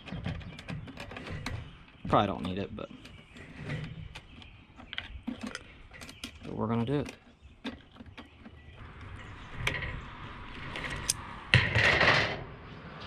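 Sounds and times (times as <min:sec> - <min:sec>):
light clicks and knocks: 0:00.0 - 0:09.9
loud scraping rustle: 0:03.1 - 0:04.3, 0:09.0 - 0:13.0.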